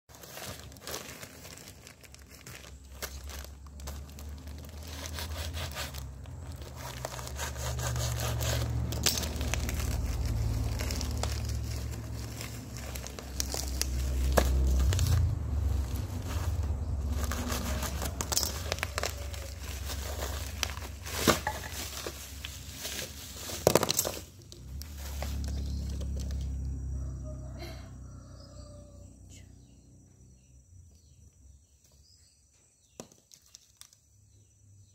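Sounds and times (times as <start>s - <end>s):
plastic packaging crinkling and tearing: 0.1s - 26.6s
low rumble: 8.6s - 23.4s.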